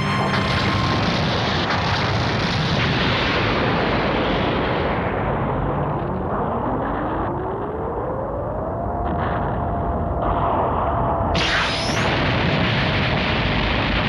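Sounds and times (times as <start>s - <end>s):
faint rising tone: 0.0s - 1.9s
cartoon explosion roar: 0.0s - 4.6s.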